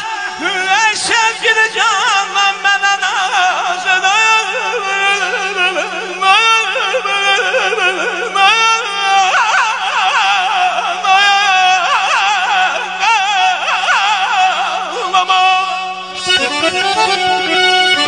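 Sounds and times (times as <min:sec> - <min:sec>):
ornamented melodic line: 0:16.1 - 0:18.0.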